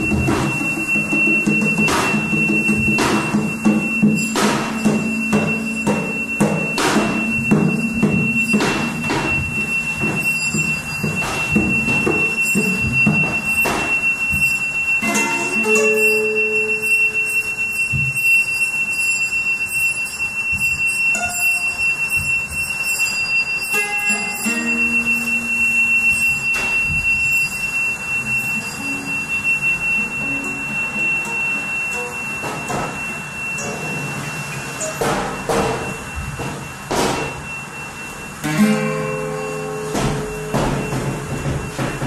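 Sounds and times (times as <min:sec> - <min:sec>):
sharp knocks: 0:00.0 - 0:15.3, 0:34.8 - 0:37.5, 0:38.4 - 0:42.0
thin high steady tone: 0:00.0 - 0:41.9
bell: 0:00.0 - 0:42.0.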